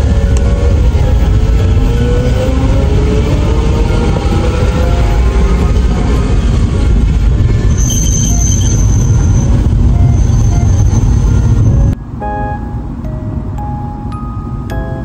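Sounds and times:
vehicle low rumble: 0.0 - 15.0
soft background music: 12.0 - 15.0
chime-like notes: 12.2 - 15.0.

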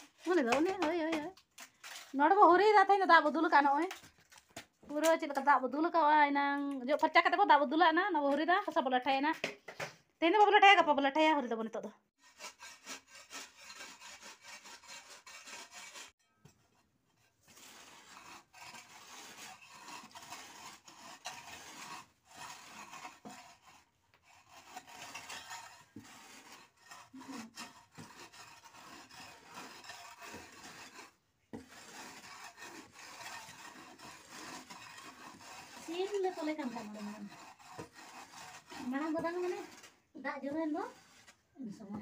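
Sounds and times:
scraper rubbing over earthen floor: 0.0 - 4.5, 17.2 - 41.8
stone rasping over earthen floor: 0.0 - 6.0, 12.1 - 42.0.

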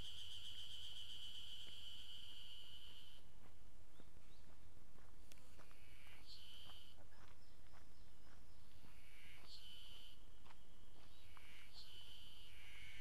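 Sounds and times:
cicadas buzzing: 0.0 - 3.2.

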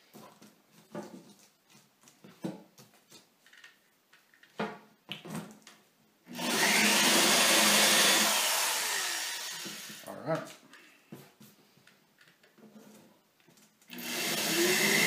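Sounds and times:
drill motor whine: 6.4 - 10.0, 14.0 - 15.0.

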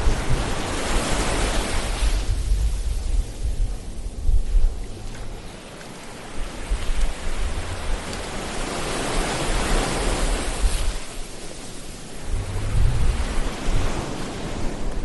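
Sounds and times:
ocean waves washing on shore: 0.0 - 15.0
low rumble: 12.1 - 14.3.

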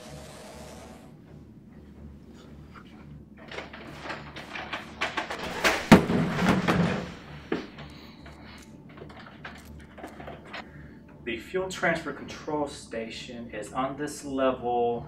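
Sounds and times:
loud rushing hiss: 0.0 - 1.1
heavy door thud: 3.4 - 7.7
door mechanism clicks and knocks: 3.4 - 7.9.

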